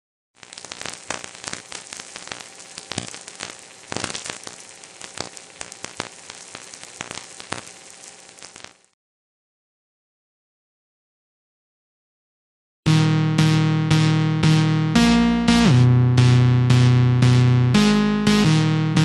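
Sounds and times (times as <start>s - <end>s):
crackling static with clicks: 0.4s - 9.0s.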